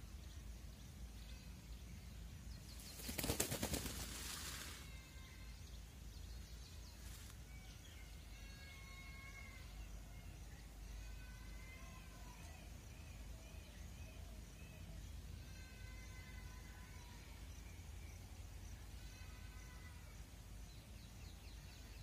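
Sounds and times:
peacock feathers rattling: 2.7s - 4.9s.

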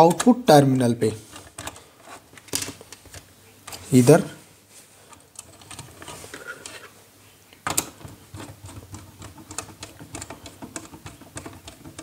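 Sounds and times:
screwdriver clicking and scraping: 7.7s - 12.0s.

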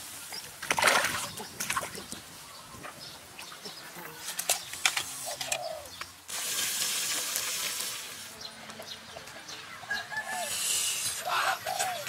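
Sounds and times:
chickens clucking: 0.3s - 6.2s, 8.4s - 12.0s
hiss: 6.3s - 8.3s, 10.3s - 11.8s.

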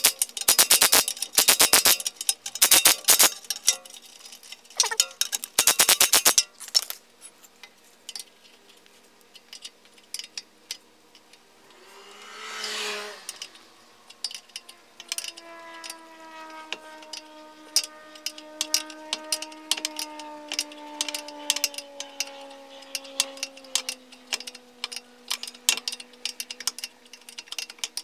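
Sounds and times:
ratchet wrench clicking: 0.0s - 7.0s, 12.6s - 28.0s.

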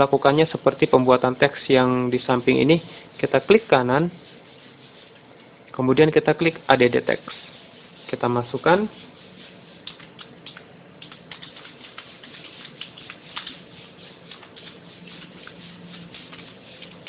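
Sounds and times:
keyboard typing: 9.8s - 13.6s.

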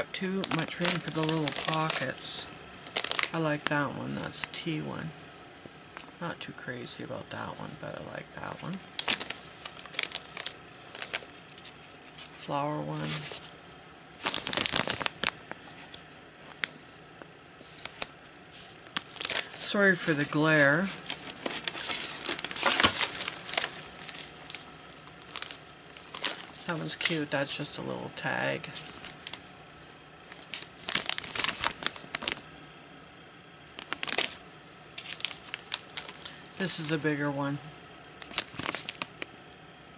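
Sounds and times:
plastic sleeves crinkling: 0.0s - 4.6s, 8.4s - 13.6s, 14.2s - 16.9s, 17.6s - 32.5s, 33.7s - 34.4s, 35.0s - 37.2s, 38.2s - 39.4s.

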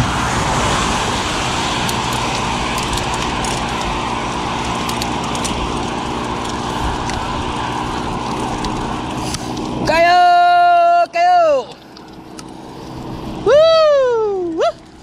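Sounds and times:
wind over microphone: 0.0s - 10.0s
bicycle tyre noise: 0.0s - 15.0s.

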